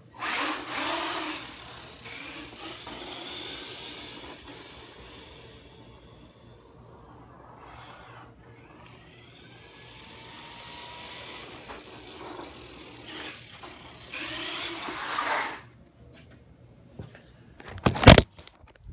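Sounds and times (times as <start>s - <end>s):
electric motor whine: 0.0s - 15.6s.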